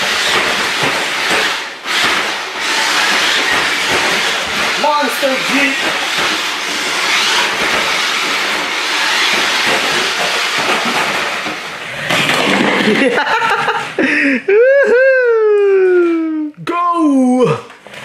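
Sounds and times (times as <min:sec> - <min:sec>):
toy truck motor whirring: 0:00.0 - 0:12.8.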